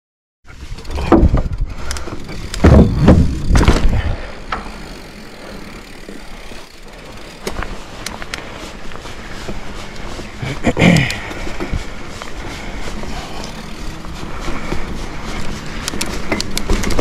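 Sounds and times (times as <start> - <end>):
bike clicks: 0.5 - 17.0
bike knocking and rattling: 0.5 - 17.0
tyres rolling on dirt: 0.5 - 17.0.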